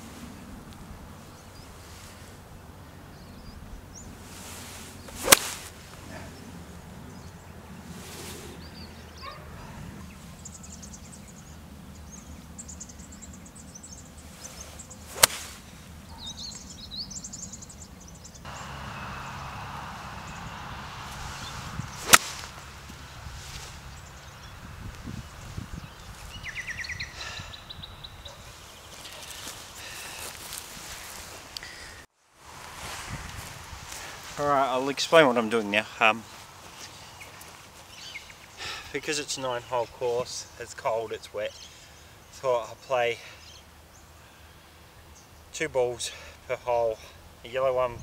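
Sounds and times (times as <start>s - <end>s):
golf club striking ball: 5.2s - 5.6s, 15.2s - 15.6s, 21.9s - 23.0s.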